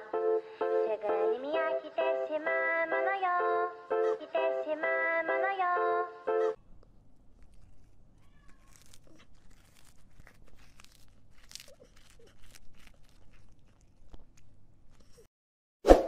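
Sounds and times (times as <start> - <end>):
cat chewing with crunching clicks: 6.6 - 15.2.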